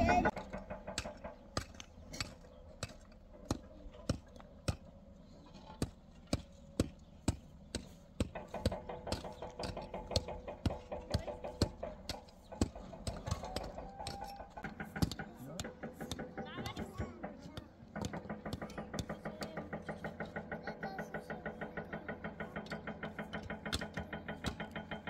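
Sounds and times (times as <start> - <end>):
sharp short knocks: 5.8 - 25.0.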